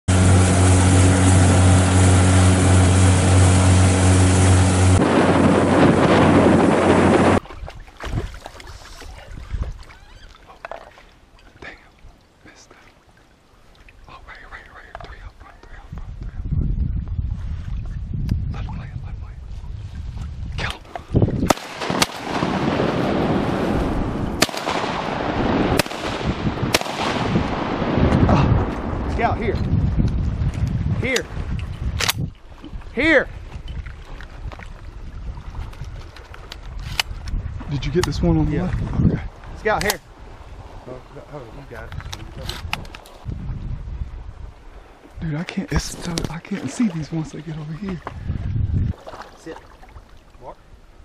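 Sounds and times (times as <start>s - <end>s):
boat motor running: 0.1s - 7.4s
rush of wind and water: 0.1s - 51.0s
shotgun shots: 21.5s - 23.0s, 24.4s - 27.4s.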